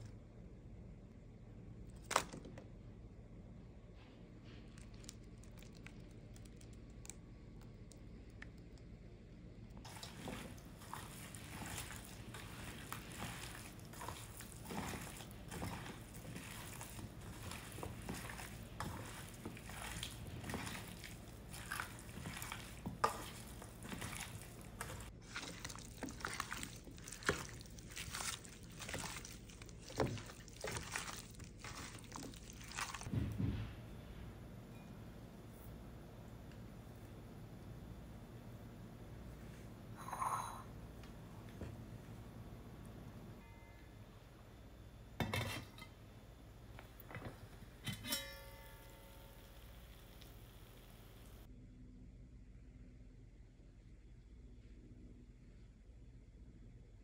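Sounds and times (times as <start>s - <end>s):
wet squishing of food: 4.6s - 9.1s, 9.8s - 33.1s.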